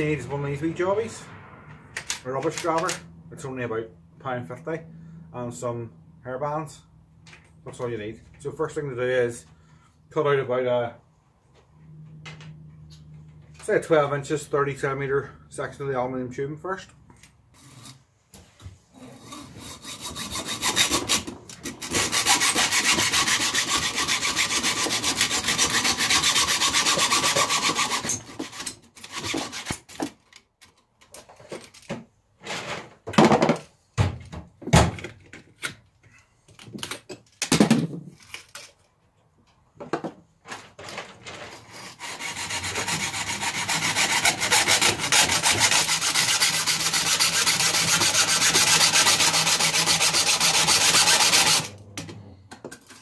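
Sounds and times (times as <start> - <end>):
hacksaw cutting metal tubing: 19.0 - 30.2, 41.6 - 51.8.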